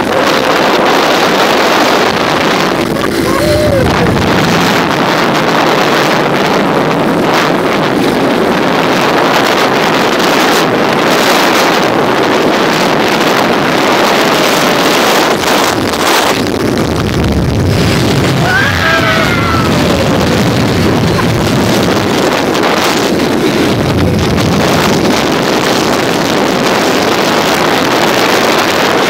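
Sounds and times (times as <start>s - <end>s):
motorcycle engine running: 0.0s - 27.9s
wind rushing over microphone: 0.0s - 29.0s.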